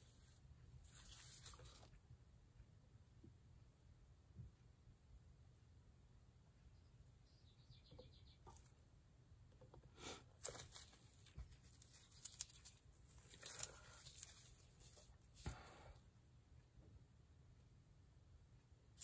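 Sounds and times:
plastic crinkling: 0:10.4 - 0:15.5.

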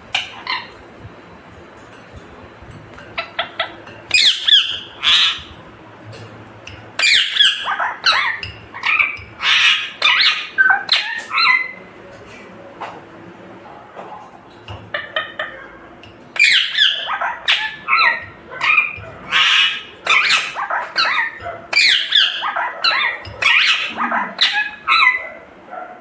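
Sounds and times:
parakeet calling: 0:00.1 - 0:00.8, 0:03.1 - 0:05.6, 0:06.8 - 0:11.9, 0:14.8 - 0:25.4.

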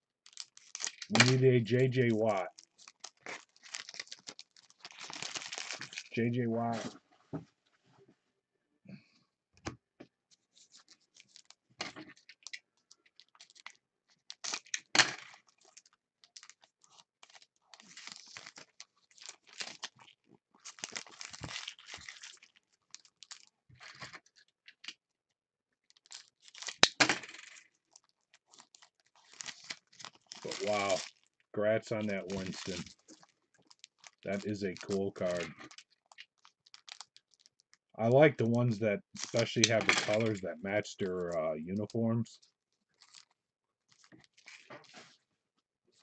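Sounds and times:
foil wrapper rustling and tearing: 0:00.2 - 0:06.2, 0:10.5 - 0:24.8, 0:25.8 - 0:37.8, 0:39.1 - 0:40.4, 0:42.4 - 0:45.2.

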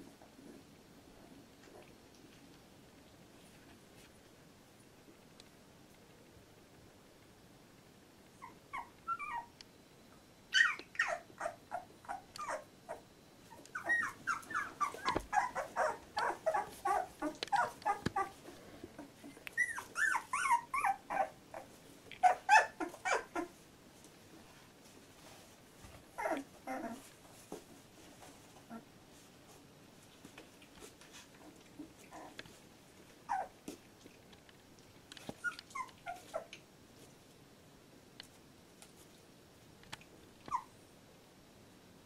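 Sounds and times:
puppies crying and whining: 0:08.4 - 0:09.6, 0:10.5 - 0:23.5, 0:26.2 - 0:27.1, 0:33.3 - 0:33.6, 0:35.4 - 0:36.5, 0:40.5 - 0:40.7.

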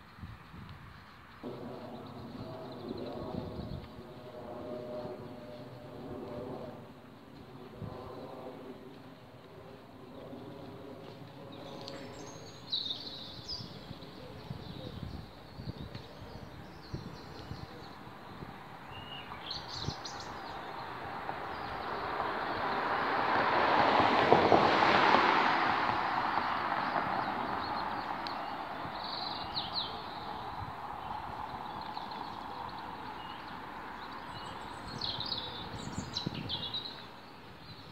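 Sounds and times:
vehicle passing by: 0:20.4 - 0:35.9
small birds chirping: 0:26.5 - 0:37.9.

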